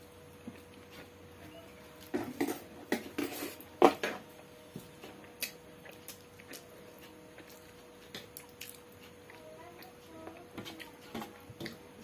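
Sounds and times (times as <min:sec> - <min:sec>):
mouth and chewing noises: 0:04.8 - 0:11.9.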